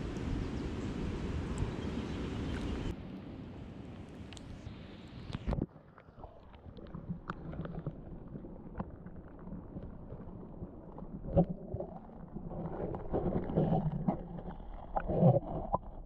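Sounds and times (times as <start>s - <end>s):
muffled underwater creek rumble: 0.0s - 3.0s, 4.1s - 16.0s
underwater clicks and knocks: 6.8s - 16.0s.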